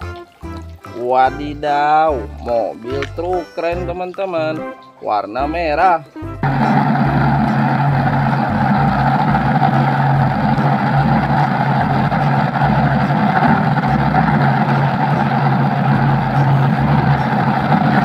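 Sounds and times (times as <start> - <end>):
steady motor drone: 6.4 - 18.0.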